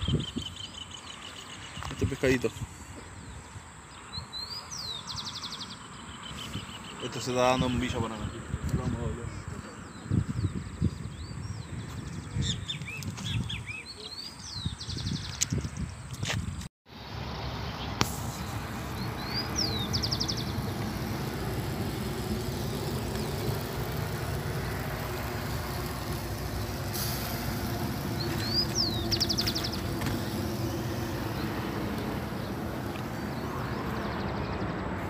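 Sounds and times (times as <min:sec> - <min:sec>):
low steady rumble: 0:18.2 - 0:33.8
bird whistle and rattle call: 0:27.0 - 0:30.5.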